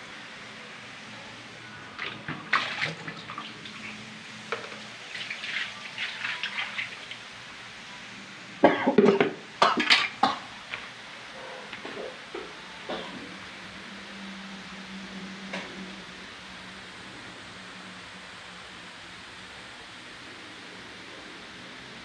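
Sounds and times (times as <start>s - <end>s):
water splashing on coil: 2.0s - 4.0s.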